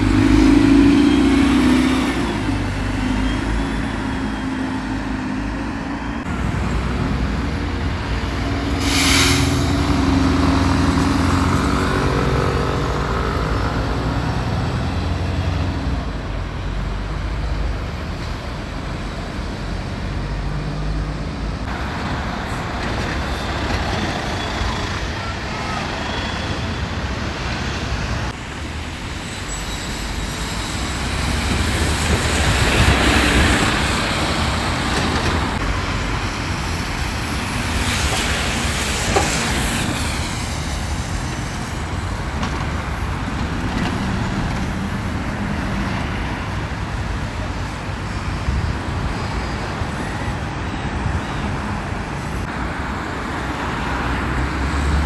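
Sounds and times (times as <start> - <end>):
bus engines rumbling: 0.0 - 55.0
passing traffic: 0.0 - 55.0
air brake hiss: 8.7 - 9.9.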